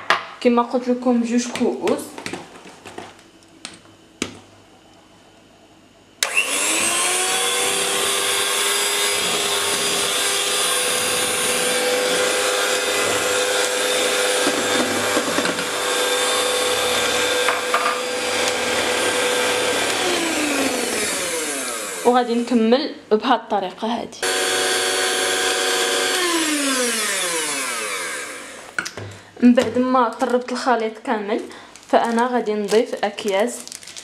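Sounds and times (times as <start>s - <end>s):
electric hand mixer whining: 6.2s - 22.5s, 24.2s - 28.8s.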